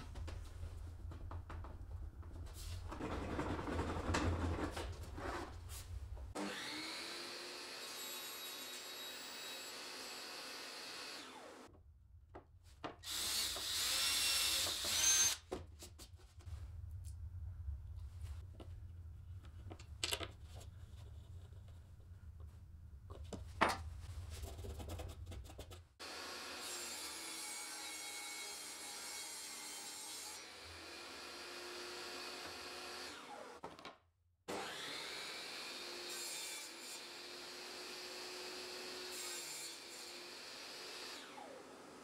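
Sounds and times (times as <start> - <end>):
table saw cutting boards: 6.3 - 11.7, 13.0 - 15.4, 26.0 - 33.7, 34.5 - 42.0.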